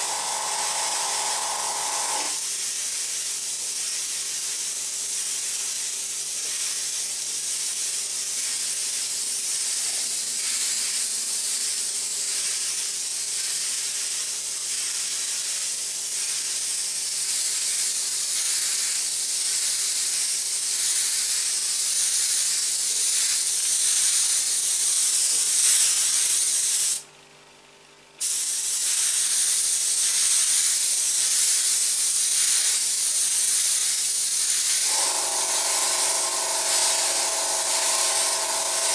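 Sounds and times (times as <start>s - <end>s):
airbrush hissing: 0.0s - 4.6s, 13.4s - 27.0s, 28.2s - 38.9s.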